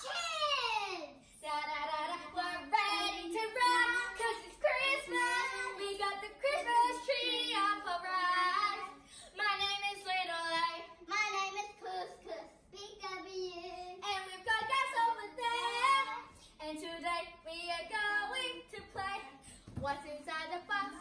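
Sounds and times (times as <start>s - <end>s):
young children singing: 1.2s - 12.5s, 13.3s - 21.0s.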